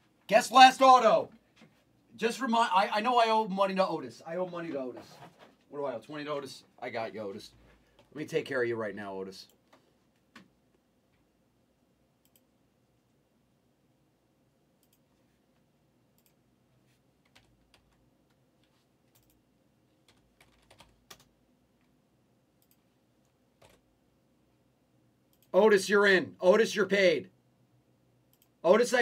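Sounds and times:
computer keyboard typing: 0:17.2 - 0:18.0, 0:19.1 - 0:19.4, 0:20.0 - 0:21.4, 0:23.6 - 0:23.8.

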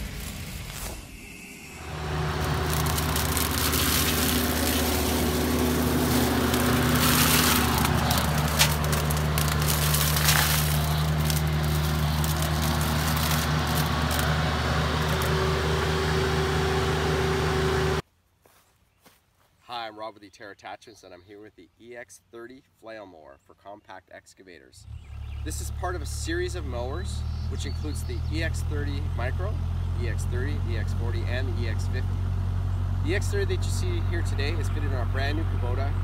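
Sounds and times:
flail mower shredding grass: 0:00.0 - 0:18.0, 0:25.2 - 0:36.0
diesel engine running under load: 0:01.8 - 0:18.0, 0:24.9 - 0:36.0.

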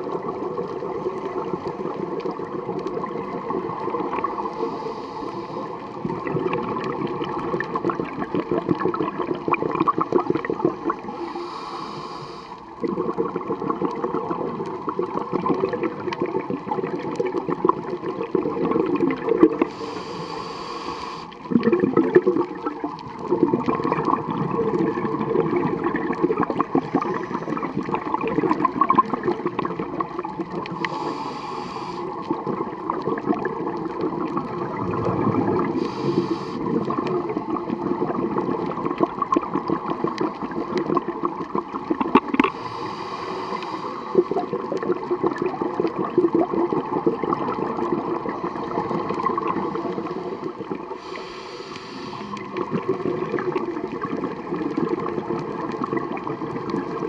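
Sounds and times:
exhaled bubbles gurgling: 0:00.0 - 0:57.0
regulator inhaling hiss: 0:04.2 - 0:06.0, 0:10.8 - 0:12.8, 0:19.6 - 0:21.5, 0:30.6 - 0:32.6, 0:35.5 - 0:36.9, 0:42.4 - 0:44.5, 0:48.5 - 0:52.6.

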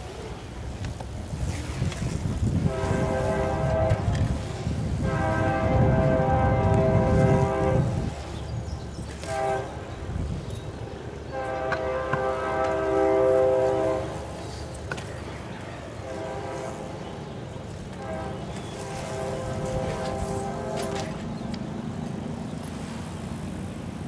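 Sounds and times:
horn blasts: 0:02.6 - 0:08.1, 0:09.2 - 0:09.9, 0:11.3 - 0:14.4, 0:15.9 - 0:17.2, 0:17.8 - 0:21.3.

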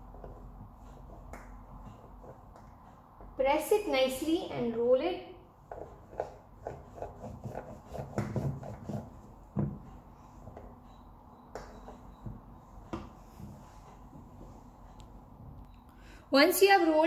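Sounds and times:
rolling pin rubbing strokes: 0:05.6 - 0:11.0.

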